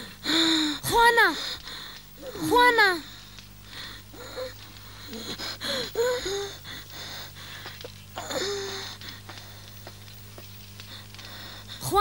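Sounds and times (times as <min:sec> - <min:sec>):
girl moaning and gasping: 0:00.0 - 0:01.4, 0:04.0 - 0:09.1.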